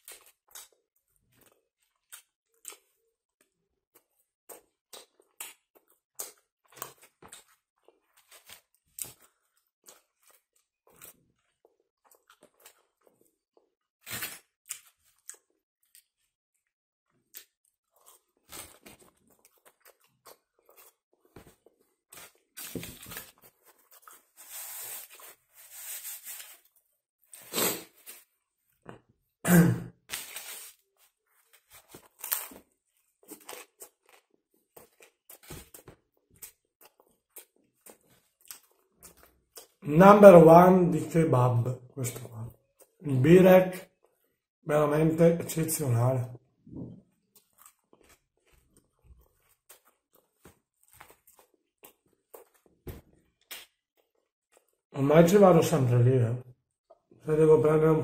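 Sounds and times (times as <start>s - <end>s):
person chewing and biting food: 3.9s - 16.3s, 17.1s - 28.3s, 30.1s - 39.8s, 47.1s - 54.8s.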